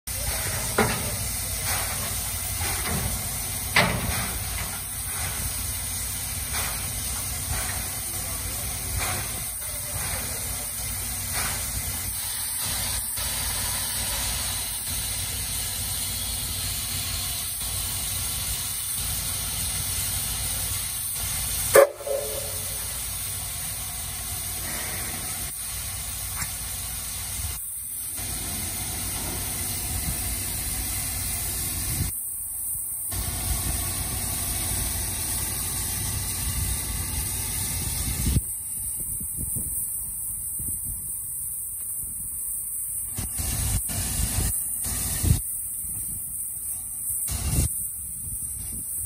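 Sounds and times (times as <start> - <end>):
steam locomotive hissing: 0.0 - 49.0
loud metallic clank: 2.6 - 5.4, 21.8 - 23.0.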